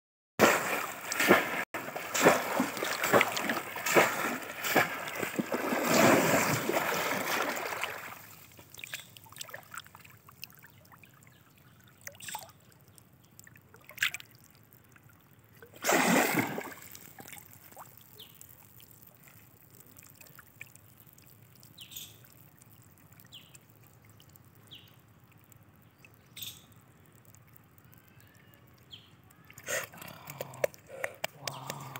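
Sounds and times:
water sloshing: 0:00.4 - 0:21.5
muddy water splashing: 0:00.4 - 0:24.9.

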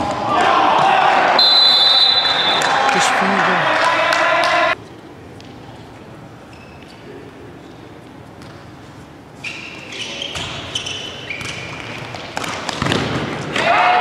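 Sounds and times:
loud shout: 0:00.2 - 0:04.8, 0:13.5 - 0:14.0
sneakers squeaking: 0:04.9 - 0:13.5
ball kicked and bouncing: 0:11.4 - 0:13.4.

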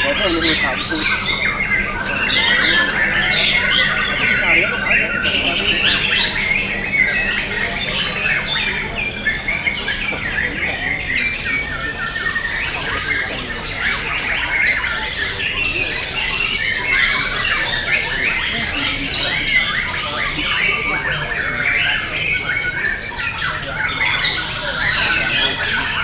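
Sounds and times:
birds singing whistled phrases: 0:00.0 - 0:26.0
low background murmur: 0:00.0 - 0:26.0.

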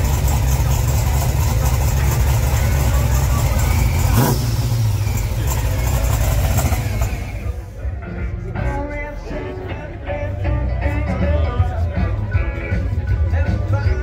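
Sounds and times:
car engine rumbling: 0:00.0 - 0:10.3.

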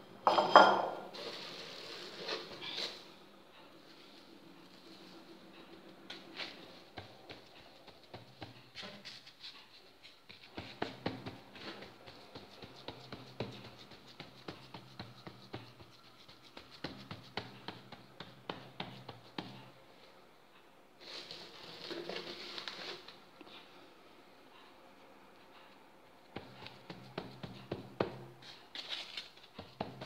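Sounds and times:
hand patting dough on wooden board: 0:06.9 - 0:08.8, 0:10.3 - 0:19.6, 0:26.3 - 0:28.3, 0:29.6 - 0:30.0.

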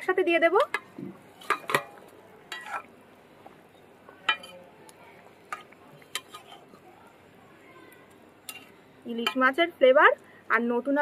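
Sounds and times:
faint bubbling curry: 0:00.0 - 0:11.0
metal spatula scraping pot: 0:00.6 - 0:02.9, 0:04.3 - 0:04.6, 0:05.4 - 0:06.9, 0:08.4 - 0:09.6.

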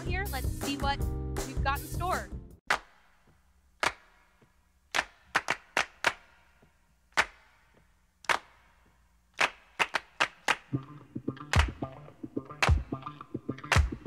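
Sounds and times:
sharp percussive snaps: 0:09.4 - 0:14.0.

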